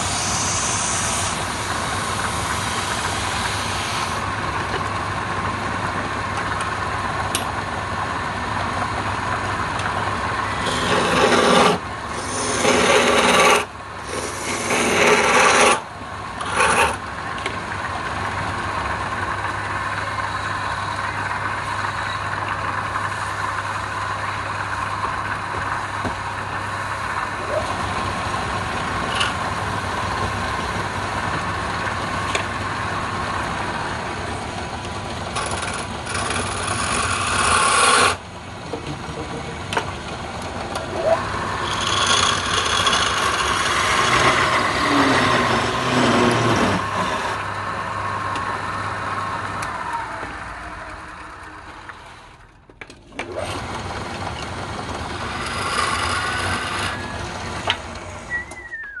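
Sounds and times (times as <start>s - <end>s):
tool grating on spinning wood: 0.0s - 4.3s, 9.6s - 17.1s, 35.1s - 38.3s, 40.6s - 47.6s, 53.4s - 58.3s
wood lathe motor hum: 0.0s - 52.4s, 53.2s - 58.8s.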